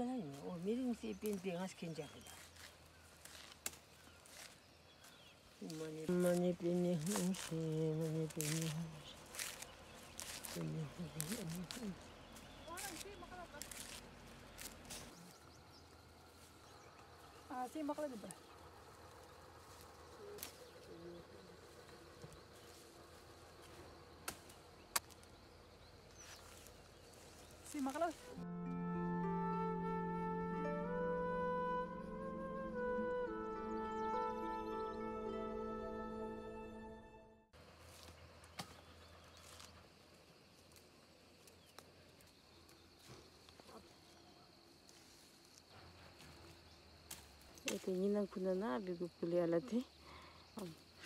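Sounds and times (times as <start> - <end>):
leafy branches snapping and rustling: 0.0 - 4.6, 5.6 - 15.4, 19.7 - 21.0, 23.6 - 25.4, 46.2 - 48.1.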